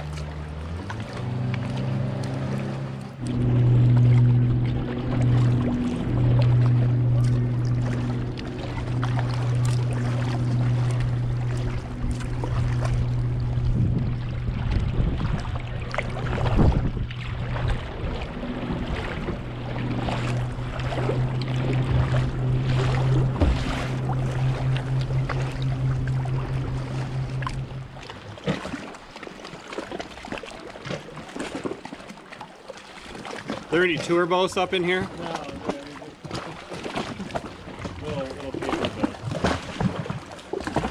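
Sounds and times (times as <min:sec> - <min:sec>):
steady low hum: 0:00.0 - 0:29.0
kayak paddles splashing in water: 0:00.0 - 0:40.9.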